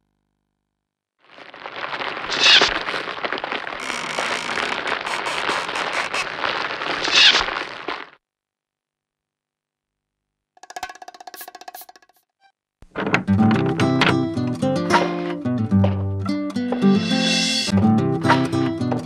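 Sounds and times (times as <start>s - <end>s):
crackling hissing fire: 1.3s - 8.2s.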